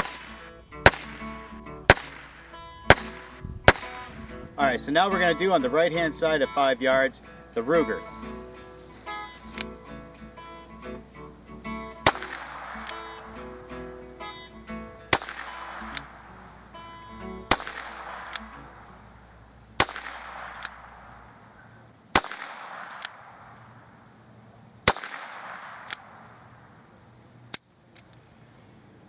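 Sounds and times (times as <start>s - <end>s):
revolver shots: 0.0s - 4.1s, 12.0s - 13.4s, 15.1s - 16.4s, 17.4s - 18.9s, 19.8s - 21.4s.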